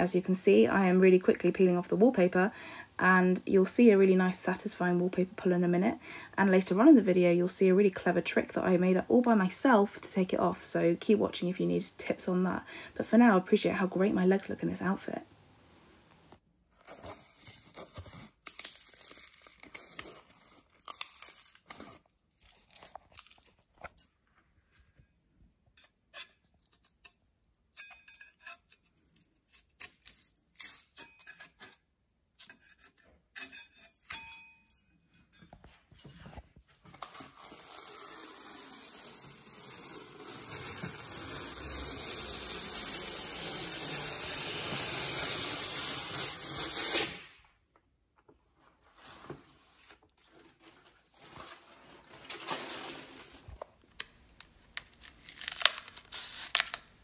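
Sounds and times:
wallpaper tearing: 0:37.0 - 0:47.4, 0:54.6 - 0:57.0.

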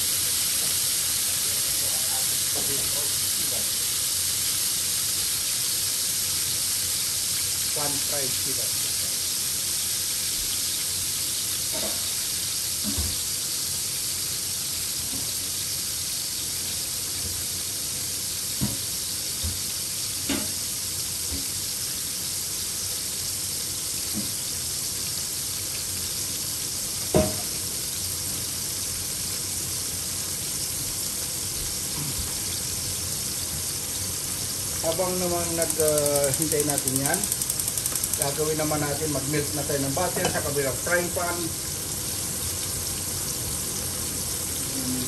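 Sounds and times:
fish sizzling in hot oil: 0:00.0 - 0:45.0
oil popping and crackling: 0:31.6 - 0:45.0.

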